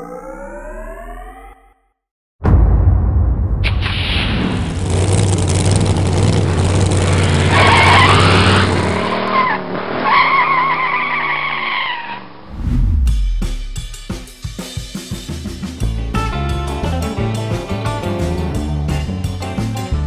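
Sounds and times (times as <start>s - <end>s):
deep rumble: 2.4s - 7.2s, 12.4s - 13.9s
car engine running: 4.6s - 9.2s
tires squealing: 4.8s - 12.4s.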